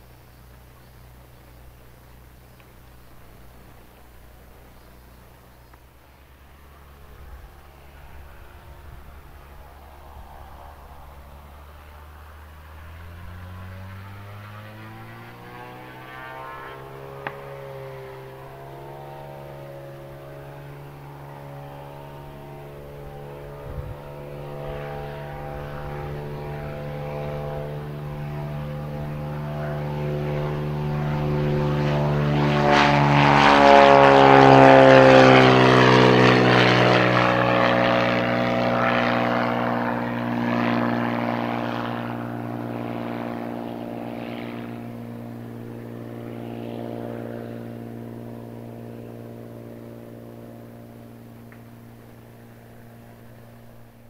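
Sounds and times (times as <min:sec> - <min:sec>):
propeller plane taking off: 0:00.0 - 0:54.0.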